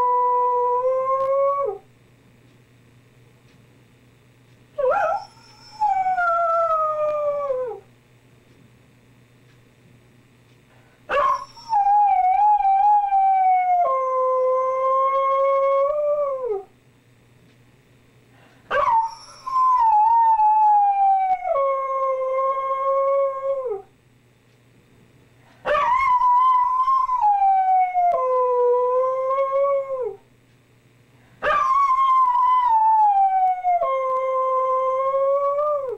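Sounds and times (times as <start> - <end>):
dog howling: 4.8 - 7.8, 18.7 - 23.9, 25.7 - 30.2, 31.4 - 35.9.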